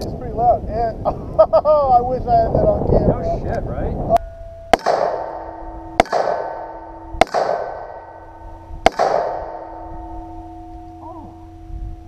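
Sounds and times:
steel target ringing: 0:04.2 - 0:12.0
gunshots: 0:04.7 - 0:08.2, 0:08.8 - 0:09.8.

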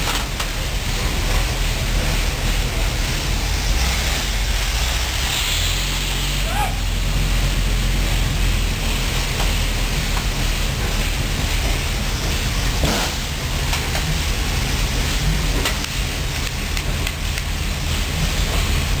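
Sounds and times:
tank engine droning: 0:00.0 - 0:19.0.

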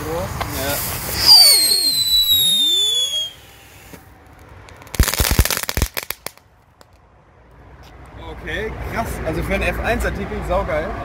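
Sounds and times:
firework sparks hissing: 0:00.3 - 0:06.4
firework crackling: 0:00.3 - 0:07.0
falling whistle: 0:01.2 - 0:03.8.

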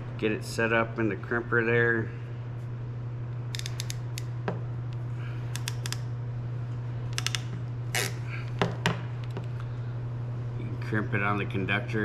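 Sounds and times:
steady low hum: 0:00.0 - 0:12.0
crimping tool clicking: 0:03.5 - 0:04.3, 0:05.5 - 0:06.1.

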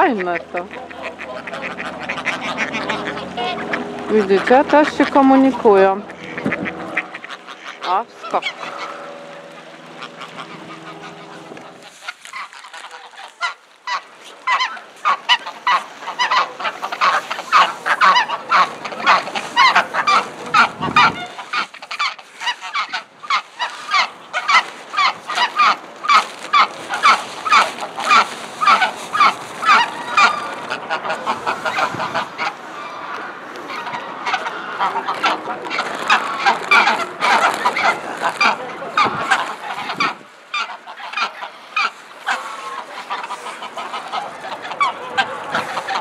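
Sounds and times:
steady low hum: 0:00.0 - 0:12.8
geese honking: 0:00.0 - 0:46.0.

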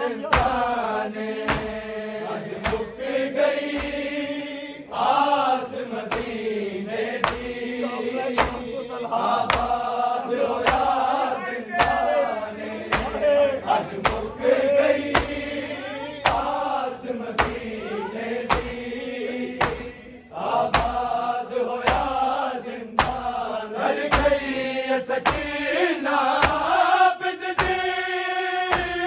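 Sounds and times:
men chanting in unison: 0:00.0 - 0:29.0
hands striking chests: 0:01.4 - 0:01.8, 0:08.3 - 0:08.6, 0:10.6 - 0:11.1, 0:11.8 - 0:12.2, 0:12.8 - 0:13.4, 0:17.3 - 0:20.0, 0:20.7 - 0:21.0.

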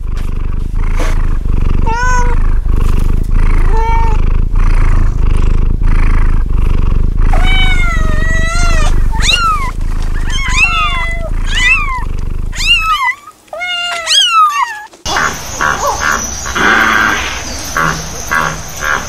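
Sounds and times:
cat purring: 0:00.0 - 0:13.2
cat meowing: 0:01.8 - 0:02.4, 0:03.6 - 0:04.2, 0:07.3 - 0:15.1.

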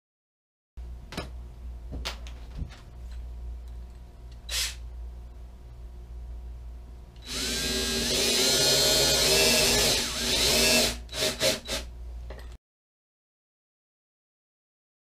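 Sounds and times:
drill boring into sheet steel: 0:07.2 - 0:11.9.

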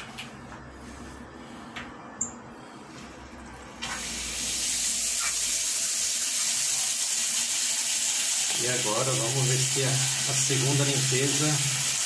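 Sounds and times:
water gushing from faucet: 0:03.4 - 0:12.0.

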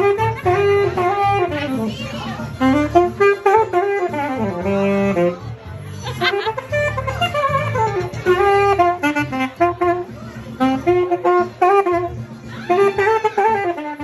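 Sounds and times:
alto saxophone jazzy melody: 0:00.0 - 0:14.0.

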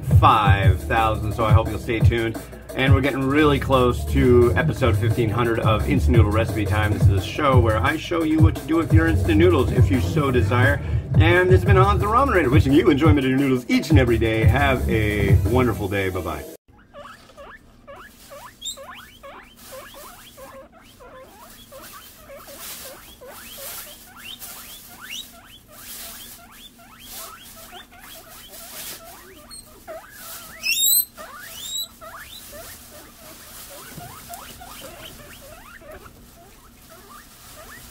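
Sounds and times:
guinea pigs squeaking: 0:00.0 - 0:37.9.

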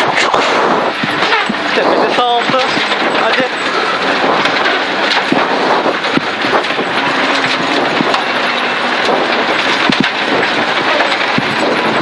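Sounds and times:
car engine and tyre rush: 0:02.4 - 0:12.0.

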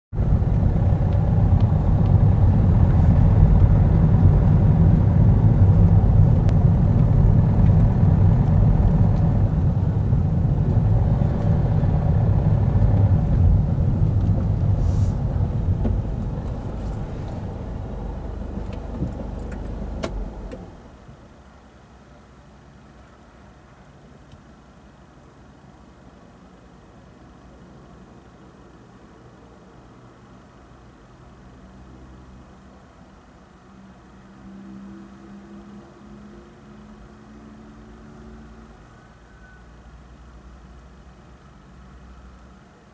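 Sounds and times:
car engine and tyres rumbling: 0:00.1 - 0:26.2.

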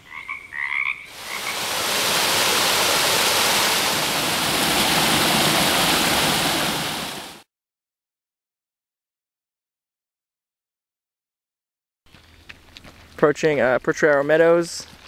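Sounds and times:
water pouring over rocks: 0:01.1 - 0:07.4.

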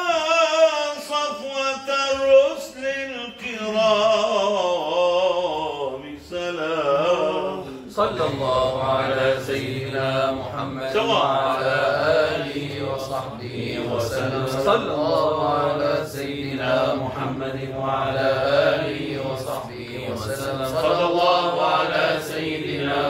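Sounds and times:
choir low drone: 0:03.8 - 0:23.0.

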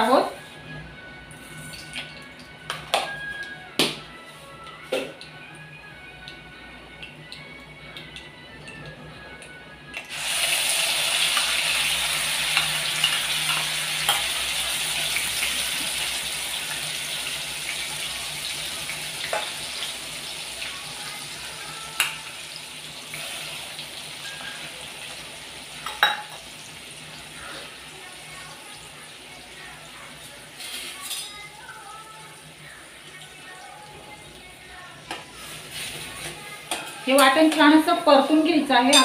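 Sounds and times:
paste sizzling in hot oil: 0:10.1 - 0:20.6.

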